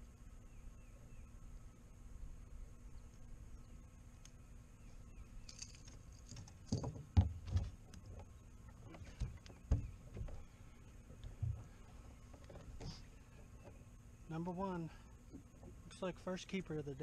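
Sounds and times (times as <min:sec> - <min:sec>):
thumps on boat deck: 0:09.0 - 0:10.4.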